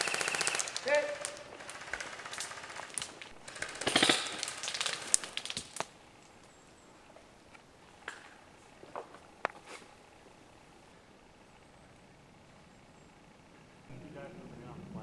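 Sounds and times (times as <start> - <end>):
airsoft guns firing: 0.0 - 5.9.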